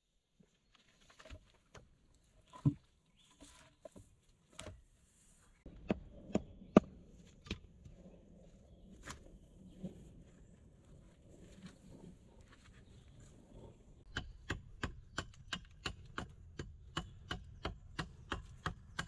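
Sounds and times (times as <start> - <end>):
logs knocking and thudding: 1.0 - 4.8.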